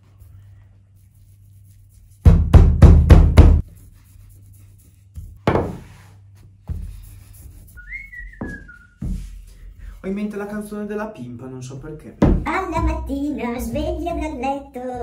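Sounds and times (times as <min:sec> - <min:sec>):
rolling pin thudding on pastry: 0:05.4 - 0:05.9
dough knocks on wooden board: 0:05.5 - 0:05.8.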